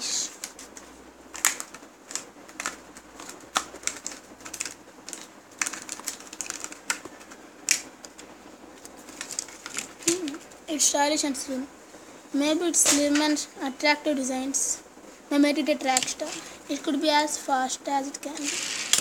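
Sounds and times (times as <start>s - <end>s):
plastic packaging being opened: 1.4s - 10.4s, 18.3s - 19.0s.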